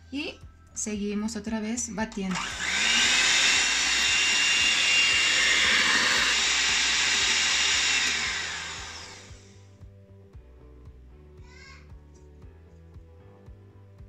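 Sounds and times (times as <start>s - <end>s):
electric hand mixer whining: 2.3s - 9.5s.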